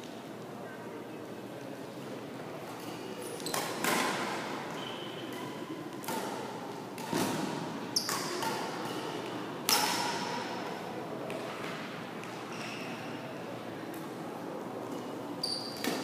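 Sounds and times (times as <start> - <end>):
rackets hitting shuttlecock: 2.8 - 4.5, 5.3 - 10.6, 15.8 - 16.0.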